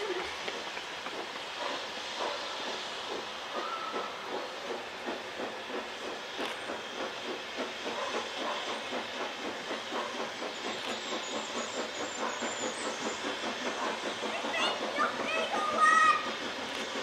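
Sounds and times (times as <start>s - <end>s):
steam hissing: 0.0s - 17.0s
steam locomotive exhaust beats: 0.0s - 17.0s.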